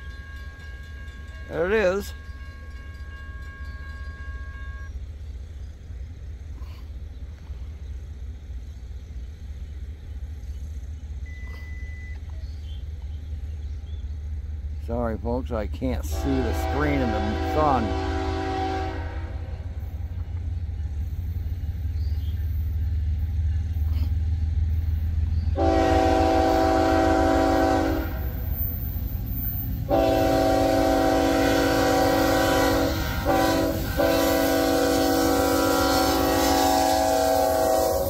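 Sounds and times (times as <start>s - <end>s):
train horn blasts: 0.0s - 4.9s, 16.1s - 19.7s, 25.5s - 28.4s, 29.8s - 38.0s
locomotive engine rumble: 0.0s - 38.0s.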